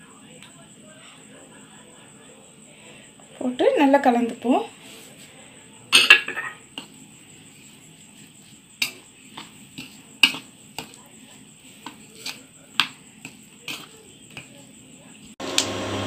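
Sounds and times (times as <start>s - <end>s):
spoon clinking on plate: 6.0s - 6.9s
spoon stirring thick mix: 6.4s - 15.4s.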